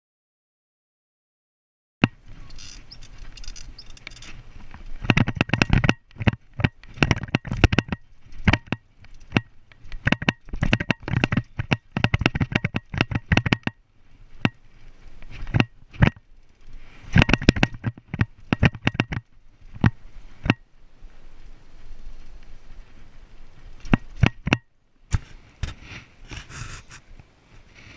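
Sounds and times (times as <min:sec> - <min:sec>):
bike clattering over bumps: 0:02.0 - 0:13.8, 0:15.3 - 0:20.6.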